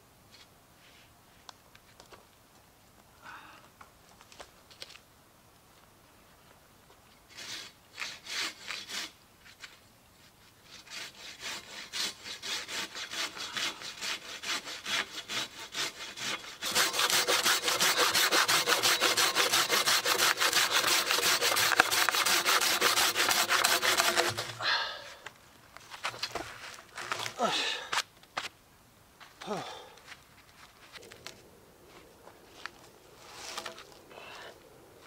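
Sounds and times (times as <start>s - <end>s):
hand saw cutting log: 7.3s - 9.2s, 10.6s - 24.8s.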